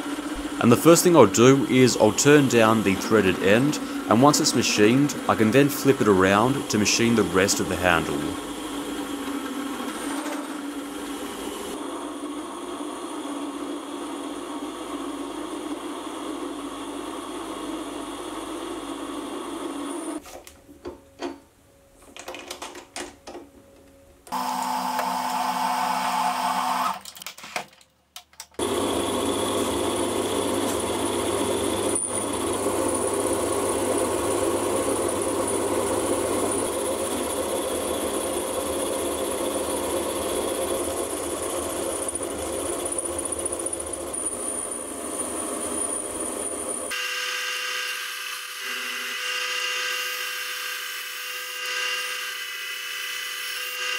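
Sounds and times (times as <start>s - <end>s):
metal lathe cutting: 0.0s - 11.8s, 24.3s - 27.0s, 28.6s - 53.9s
thin high whine: 40.3s - 53.9s.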